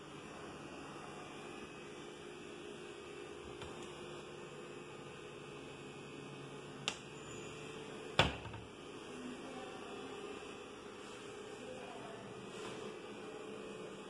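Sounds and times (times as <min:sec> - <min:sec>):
steady low hum: 0:00.0 - 0:14.0
cabinet door knocking shut: 0:08.2 - 0:08.6.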